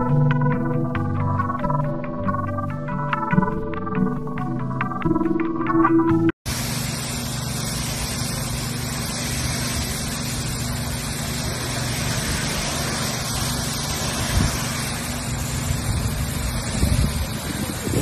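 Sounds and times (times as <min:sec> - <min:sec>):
pressure washer engine hum: 0:06.5 - 0:18.0
water jet hissing on stone: 0:06.5 - 0:18.0.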